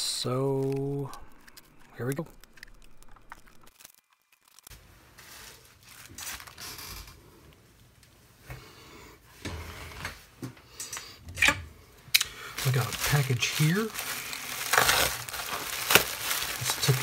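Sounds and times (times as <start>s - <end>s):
bubble wrap rustling and crinkling: 0.0s - 7.2s, 12.4s - 17.0s.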